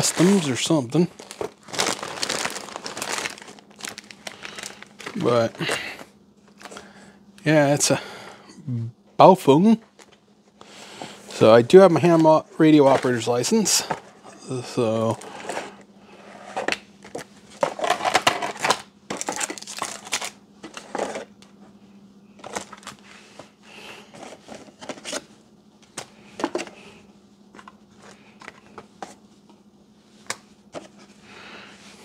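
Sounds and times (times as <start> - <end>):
packaging rustling and scraping: 0.0 - 6.8, 11.0 - 14.4, 15.1 - 21.3, 22.4 - 25.3.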